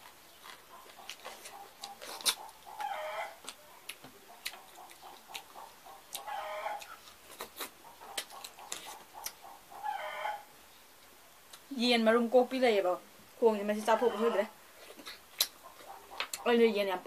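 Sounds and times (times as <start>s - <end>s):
fingers at a plate: 0.0s - 9.6s
wet chewing mouth smacks: 0.4s - 9.4s, 14.9s - 16.4s
animal calling: 0.4s - 10.5s, 13.8s - 16.6s.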